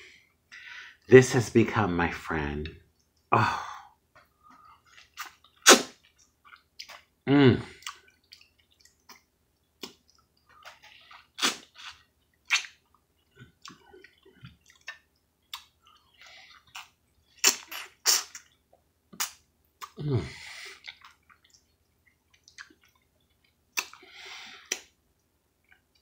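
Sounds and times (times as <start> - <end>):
chewing: 4.2 - 7.1, 7.7 - 20.0, 20.6 - 25.0
wet mango eating smacks and slurps: 4.8 - 7.1, 7.8 - 13.0, 13.6 - 18.6, 20.8 - 24.0.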